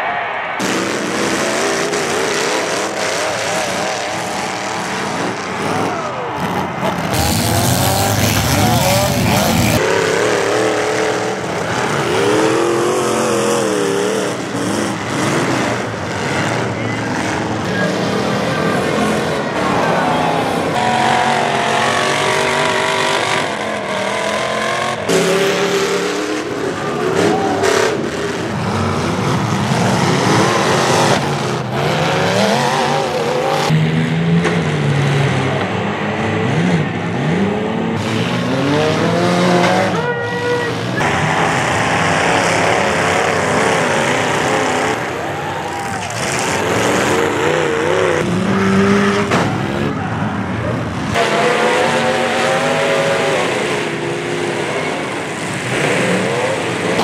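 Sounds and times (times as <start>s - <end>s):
car engines revving hard: 0.0s - 57.0s.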